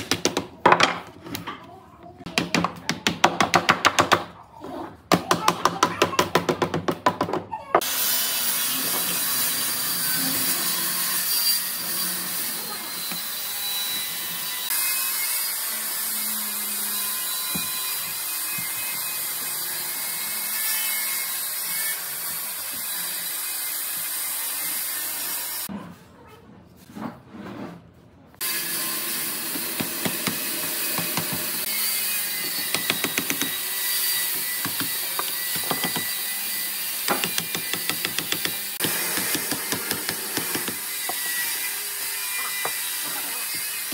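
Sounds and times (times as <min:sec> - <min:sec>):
hammer tapping: 0:32.6 - 0:33.6, 0:34.6 - 0:36.2, 0:37.1 - 0:41.2.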